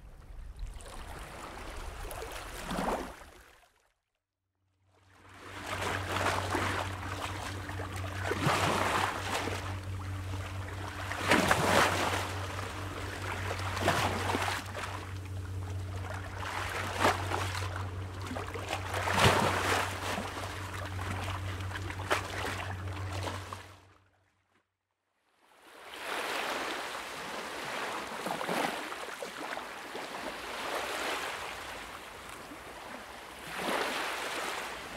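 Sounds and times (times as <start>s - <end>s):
small waves lapping and splashing: 0.0s - 3.9s, 4.9s - 24.5s, 25.3s - 34.9s
steady low hum: 5.0s - 24.0s, 29.9s - 34.9s.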